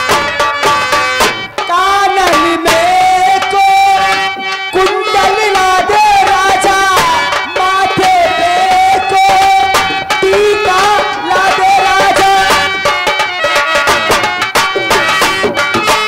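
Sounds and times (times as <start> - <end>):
drums: 0.0 - 16.0
instrumental accompaniment: 0.0 - 16.0
person singing long wavering notes: 1.7 - 13.0.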